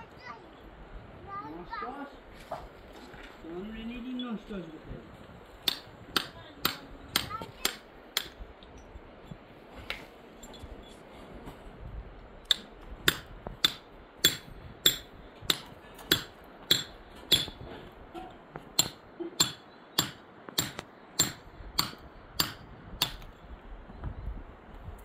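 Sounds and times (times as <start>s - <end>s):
hammer blows ringing: 12.5s - 17.6s, 18.8s - 23.2s.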